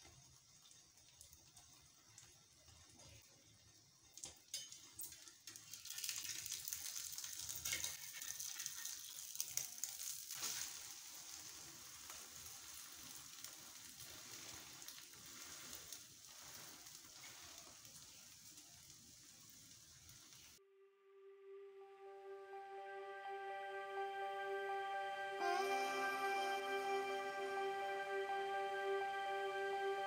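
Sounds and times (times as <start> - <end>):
food sizzling on a griddle: 0.0 - 20.6
metal spatula taps and scrapes: 4.2 - 6.2.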